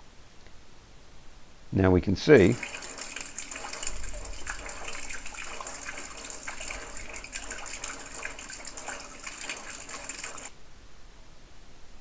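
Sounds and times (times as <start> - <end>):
rainwater splashing into a plastic bucket: 2.4 - 10.5.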